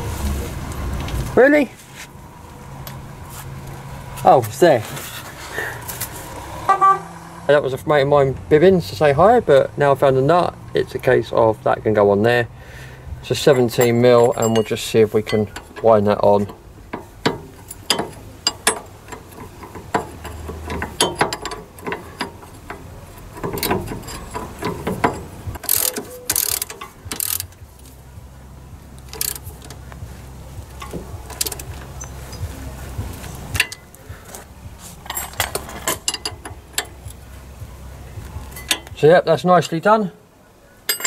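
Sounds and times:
socket ratchet clicking: 0:16.5 - 0:27.6, 0:29.0 - 0:29.8.

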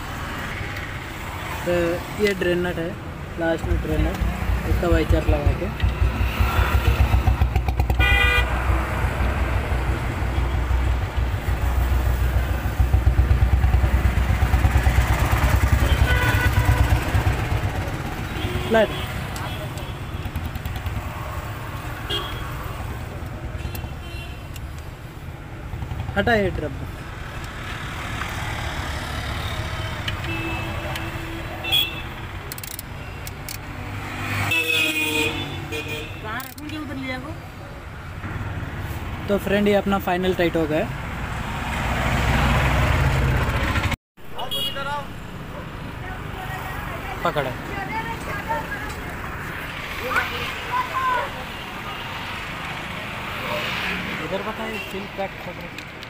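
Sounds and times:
traffic rumble: 0:00.0 - 0:56.0
socket wrench clicks: 0:32.5 - 0:33.6.

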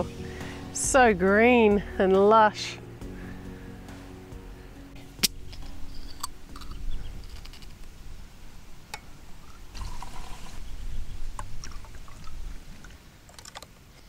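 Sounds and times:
drink pouring into glass: 0:09.7 - 0:10.7.

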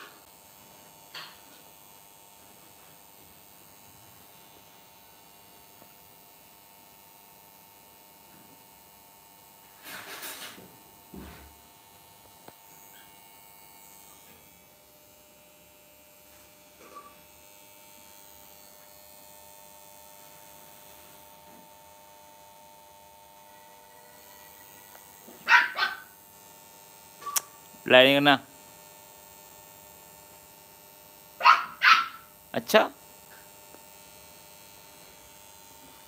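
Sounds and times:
puppy yelping: 0:25.4 - 0:26.1, 0:31.4 - 0:32.2.

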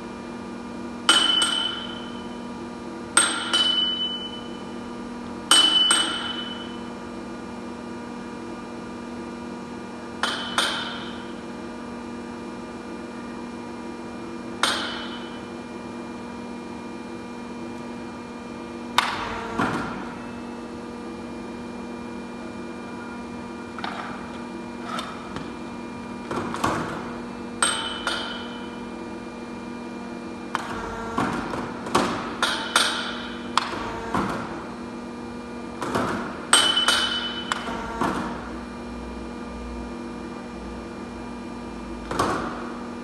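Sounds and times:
machine hum: 0:00.0 - 0:43.0
hammer striking steel: 0:01.1 - 0:02.1, 0:03.2 - 0:04.4, 0:05.5 - 0:06.8, 0:10.2 - 0:11.3, 0:14.6 - 0:15.4, 0:27.6 - 0:28.6, 0:36.6 - 0:37.7.

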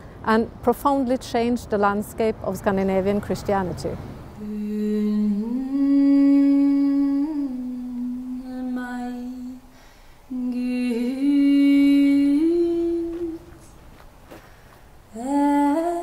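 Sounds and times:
woman singing a hymn: 0:04.4 - 0:13.8, 0:15.1 - 0:16.0.

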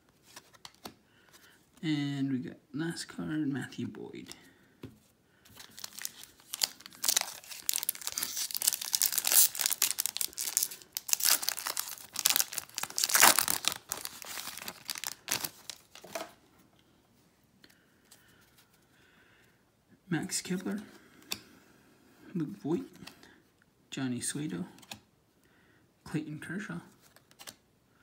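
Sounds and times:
wrapper tearing and crinkling: 0:05.6 - 0:16.2.

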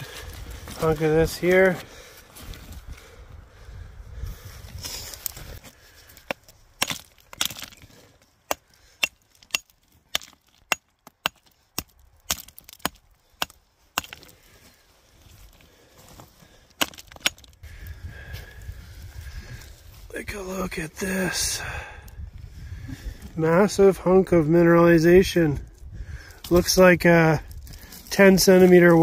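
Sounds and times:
rock hammer striking rock: 0:08.5 - 0:14.3, 0:16.8 - 0:17.5.

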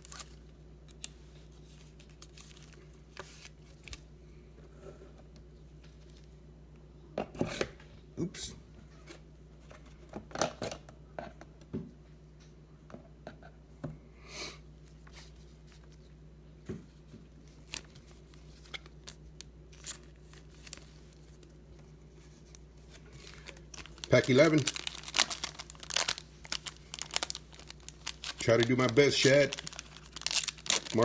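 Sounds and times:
trading cards rustling: 0:22.3 - 0:31.0
foil pack scraping rustle: 0:23.2 - 0:31.0.

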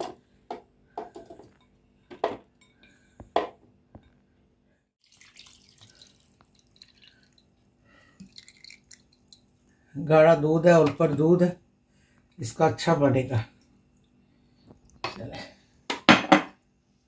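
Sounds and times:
milk pouring: 0:05.0 - 0:09.8.

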